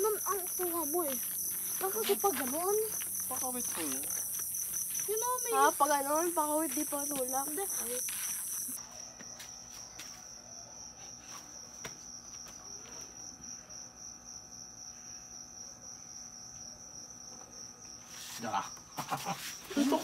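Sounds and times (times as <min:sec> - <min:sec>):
cricket chirping: 0:00.0 - 0:20.0.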